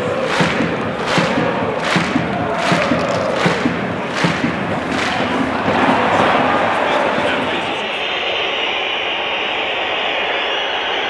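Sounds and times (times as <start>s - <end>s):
stadium crowd din: 0.0s - 11.0s.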